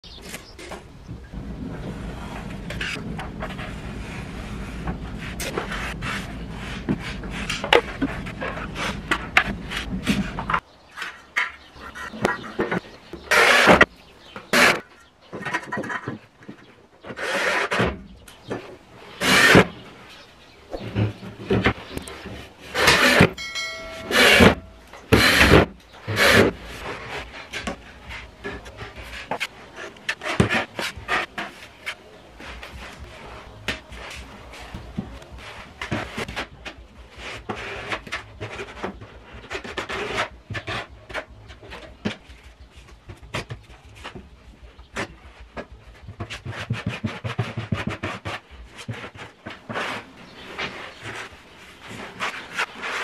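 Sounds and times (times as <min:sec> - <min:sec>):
utility knife scraping drywall: 0:01.8 - 0:11.2, 0:11.8 - 0:20.1, 0:20.7 - 0:23.4, 0:24.1 - 0:44.2, 0:45.0 - 0:53.0
putty knife scraping: 0:20.8 - 0:23.3
loud rubbing strokes: 0:22.5 - 0:27.5.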